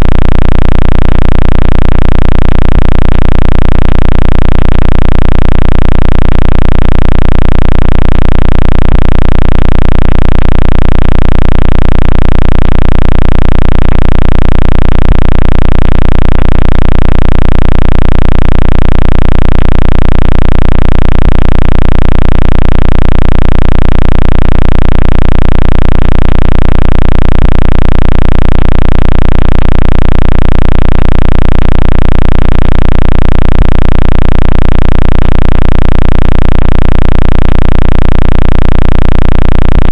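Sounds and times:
steady higher hum: 0:00.0 - 0:17.6, 0:39.5 - 0:39.9
pulsing distorted bass tone: 0:00.0 - 0:39.9.

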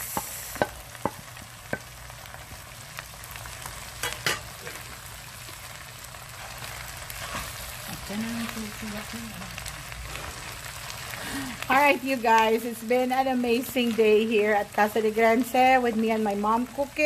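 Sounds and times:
noodles sizzling in a pan: 0:00.0 - 0:17.0.

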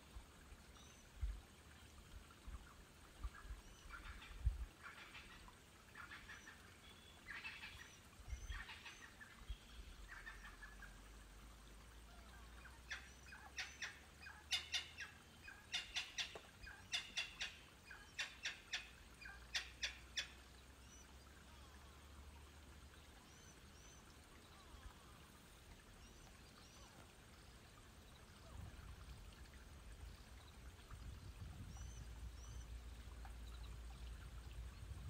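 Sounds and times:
sharp clicking bird calls: 0:12.9 - 0:20.4.

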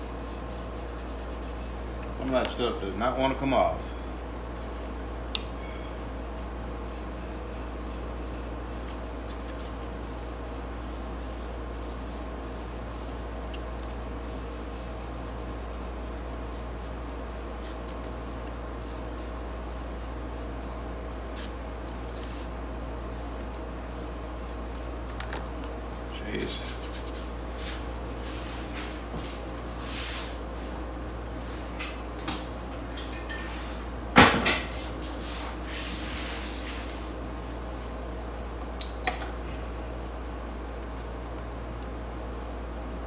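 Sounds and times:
toothbrush scrubbing metal wheel: 0:00.0 - 0:01.9, 0:06.9 - 0:09.1, 0:10.0 - 0:13.3, 0:14.2 - 0:21.5, 0:23.1 - 0:24.9.

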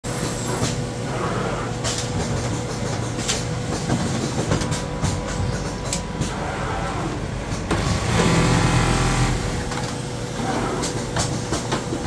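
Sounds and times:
sewing machine humming: 0:06.6 - 0:09.8.

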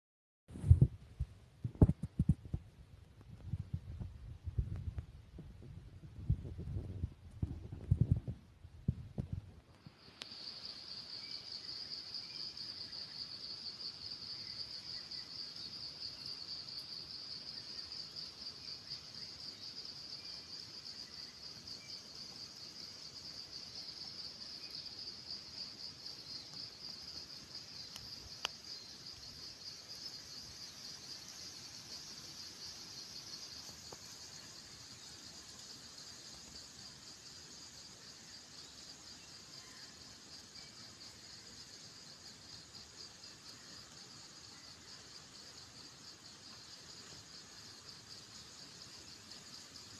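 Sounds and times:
insect high-pitched trill: 0:10.0 - 0:49.9.

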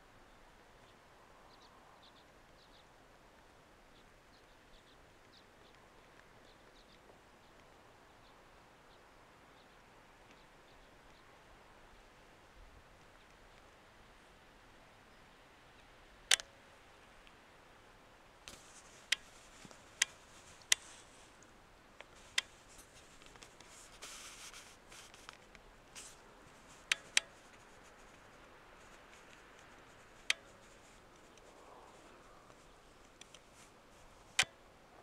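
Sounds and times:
faint steady hiss: 0:00.0 - 0:35.0
short rustle: 0:18.5 - 0:34.4.

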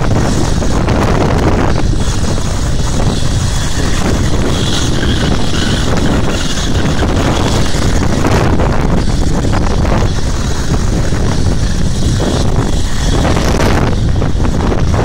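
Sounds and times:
helicopter engine and rotor: 0:00.0 - 0:15.0
wind buffeting microphone: 0:00.0 - 0:15.0.

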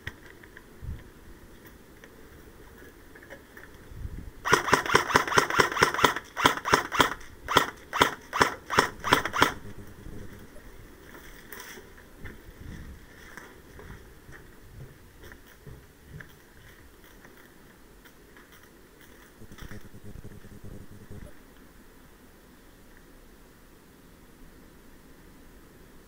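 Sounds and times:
airsoft rifle shots: 0:04.4 - 0:09.8.

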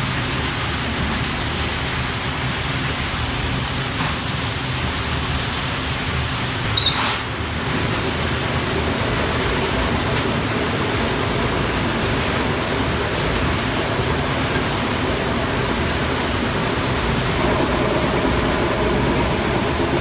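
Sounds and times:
workshop machine noise: 0:00.0 - 0:20.0
spinner motor hum: 0:10.8 - 0:20.0.

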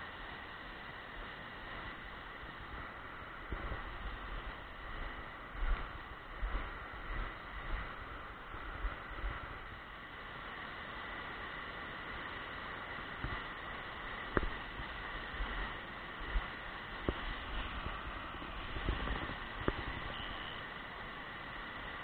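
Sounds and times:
fast river over rapids: 0:00.0 - 0:22.0
wind buffeting microphone: 0:01.8 - 0:09.8, 0:14.3 - 0:20.4.

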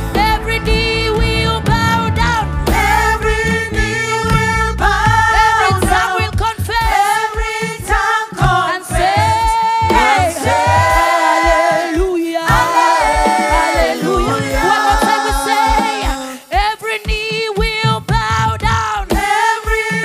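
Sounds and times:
band with drum beat: 0:00.0 - 0:20.0
group singing in harmony: 0:02.7 - 0:16.8, 0:18.8 - 0:20.0.

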